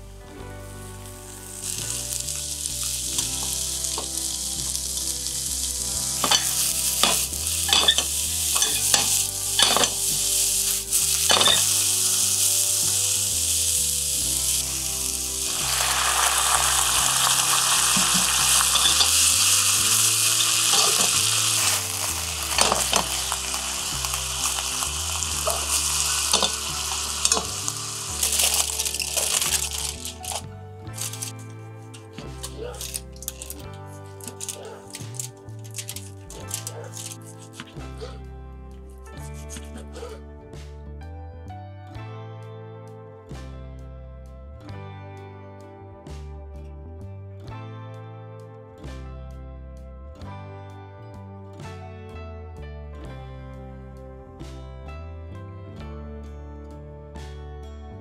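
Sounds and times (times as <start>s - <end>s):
vegetables sizzling in frying pan: 0.9s - 30.4s.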